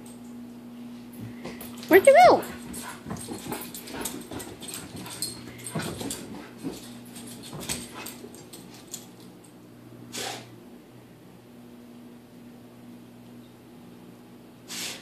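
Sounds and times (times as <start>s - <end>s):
dog paws scrabbling on carpet: 0.8s - 9.3s.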